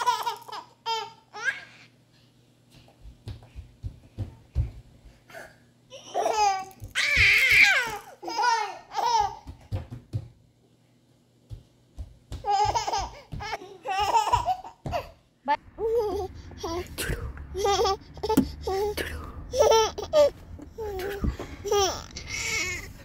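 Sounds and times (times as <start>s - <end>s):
baby laughing and babbling: 0.0s - 1.9s, 5.3s - 9.5s, 12.4s - 15.2s, 15.8s - 23.0s
low steady hum: 10.4s - 23.0s.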